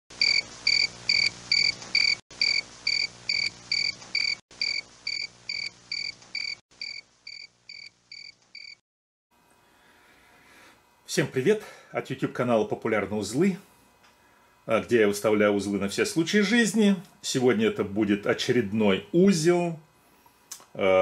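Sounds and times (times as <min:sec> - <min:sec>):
high cricket-like chirps: 0:00.2 - 0:08.8.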